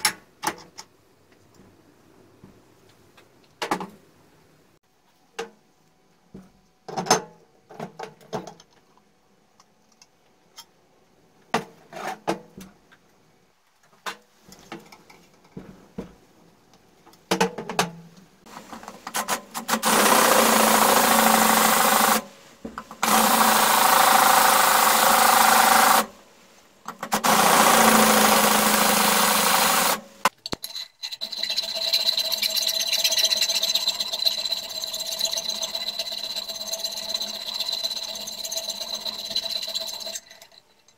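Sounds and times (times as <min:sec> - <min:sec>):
cordless drill boring into metal: 0:19.6 - 0:22.2, 0:23.0 - 0:26.1, 0:27.1 - 0:30.1.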